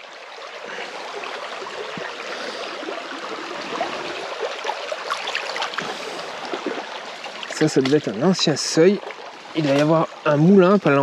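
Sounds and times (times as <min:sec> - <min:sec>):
stream water running: 0:00.0 - 0:11.0.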